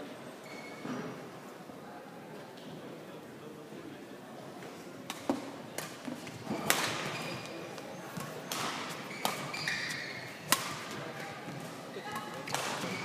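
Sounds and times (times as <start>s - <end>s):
shoe squeak on court mat: 0.4s - 1.0s, 6.6s - 10.3s, 12.5s - 13.0s
badminton rackets hitting shuttlecock: 6.6s - 7.2s, 8.2s - 13.0s.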